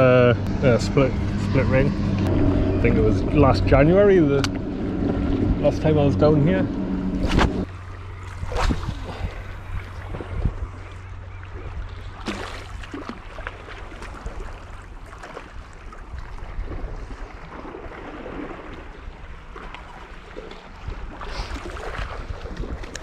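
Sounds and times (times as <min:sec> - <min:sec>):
wind rumbling on microphone: 0:00.0 - 0:12.2, 0:14.0 - 0:23.0
water lapping against rocks: 0:07.2 - 0:23.0.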